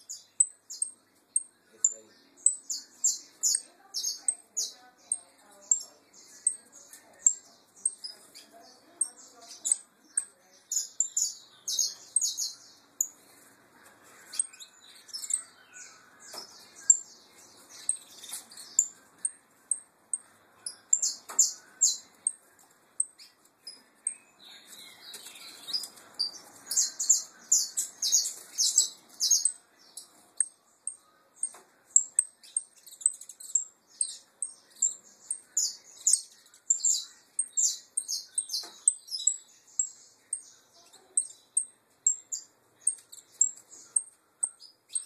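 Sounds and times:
canaries chirping and singing: 0.0s - 45.0s.

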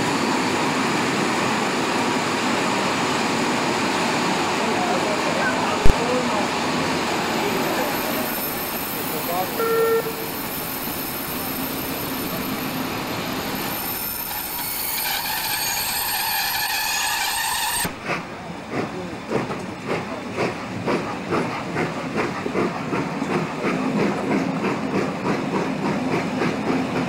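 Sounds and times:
steam locomotive exhaust beats: 5.7s - 27.0s.

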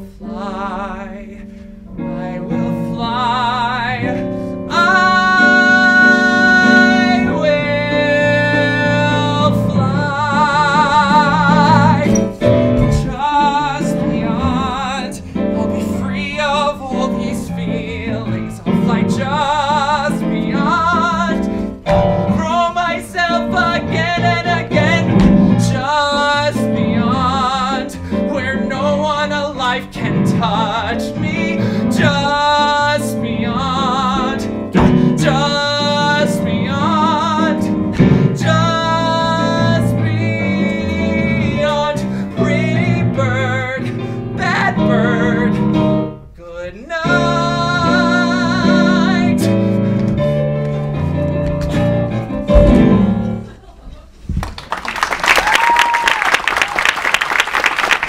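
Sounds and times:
man singing: 0.0s - 53.5s
instrumental accompaniment: 4.0s - 29.2s, 47.0s - 53.5s.

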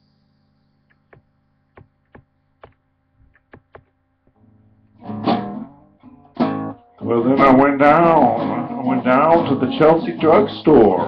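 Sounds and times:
low steady hum: 0.0s - 10.0s
acoustic guitar strummed: 4.4s - 11.0s.

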